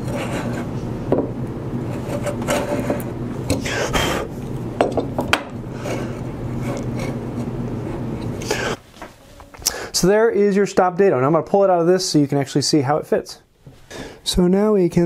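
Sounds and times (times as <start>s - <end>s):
router plane scraping wood: 0.0s - 0.9s, 1.8s - 4.3s, 5.7s - 8.8s.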